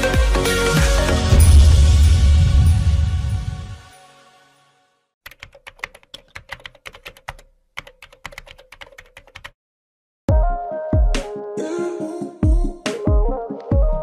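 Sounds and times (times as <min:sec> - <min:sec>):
electronic music: 0:00.0 - 0:04.2.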